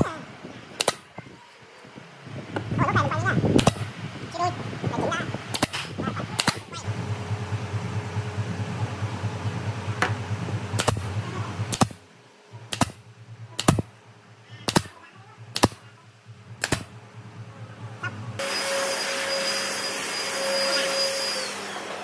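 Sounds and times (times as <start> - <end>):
sharp clicks: 0.8 - 1.1, 3.6 - 3.9, 5.5 - 6.8, 10.8 - 11.1, 12.6 - 13.9, 14.6 - 15.8, 16.6 - 16.9
low hum: 2.4 - 19.6.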